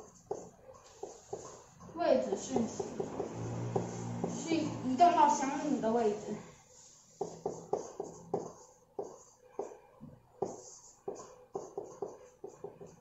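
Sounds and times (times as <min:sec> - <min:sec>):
stylus tapping and scratching: 0:07.2 - 0:09.8, 0:10.4 - 0:13.0.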